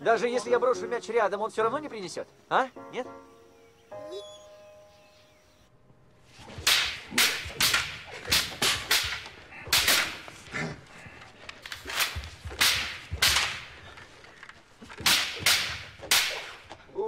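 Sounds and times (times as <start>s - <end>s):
wooden swords swishing: 6.3s - 16.8s.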